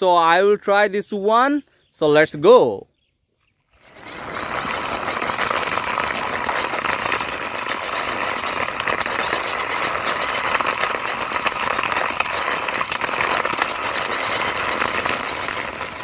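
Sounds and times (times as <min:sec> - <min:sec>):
plastic wheels rolling on concrete: 0:03.7 - 0:16.0.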